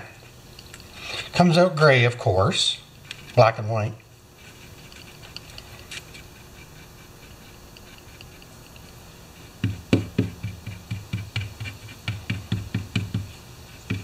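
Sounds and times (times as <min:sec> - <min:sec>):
stick knocking on cardboard: 0:09.6 - 0:14.0.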